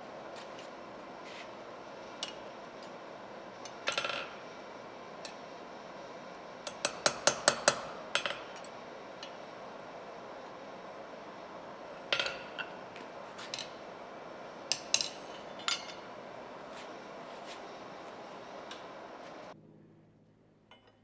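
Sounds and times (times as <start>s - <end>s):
hammer ringing on anvil: 6.7s - 8.5s.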